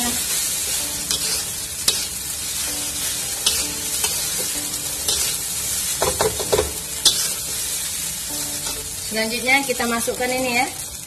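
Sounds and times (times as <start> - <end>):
rice sizzling in a wok: 0.0 - 11.0
metal spatula stirring: 0.2 - 9.1
spatula clacking on pan: 6.0 - 7.4.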